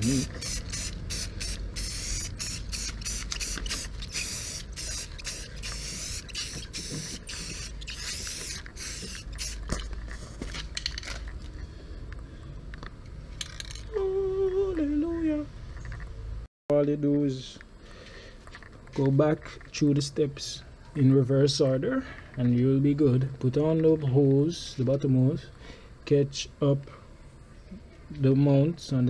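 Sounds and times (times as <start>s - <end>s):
spray paint can hissing: 0.0s - 9.8s.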